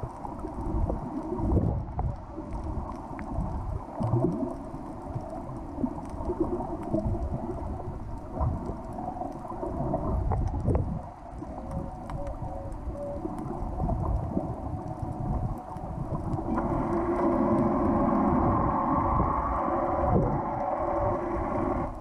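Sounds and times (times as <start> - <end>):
faint clicks: 0.0 - 22.0
underwater rumble of moving water: 0.0 - 22.0
steady multi-tone hum: 11.1 - 22.0.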